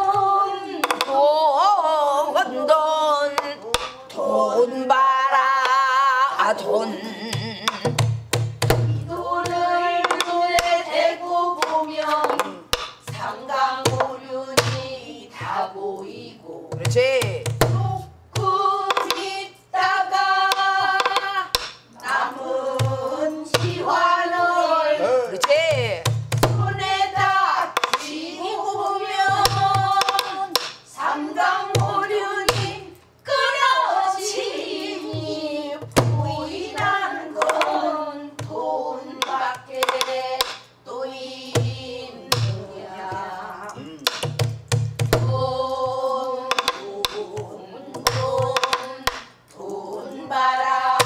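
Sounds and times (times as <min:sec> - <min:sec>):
person singing ornamented vocals: 0:00.0 - 0:08.0
person singing with held notes: 0:00.0 - 0:08.2, 0:26.6 - 0:44.4, 0:45.2 - 0:51.0
drum stick strikes: 0:00.8 - 0:01.2, 0:03.3 - 0:04.0, 0:07.3 - 0:11.0, 0:11.6 - 0:15.6, 0:16.7 - 0:28.2, 0:29.0 - 0:33.6, 0:35.0 - 0:38.6, 0:39.2 - 0:40.7, 0:41.5 - 0:49.4
barrel drum hand thumps: 0:11.6 - 0:13.3, 0:25.4 - 0:28.0, 0:42.3 - 0:43.2, 0:43.8 - 0:47.2.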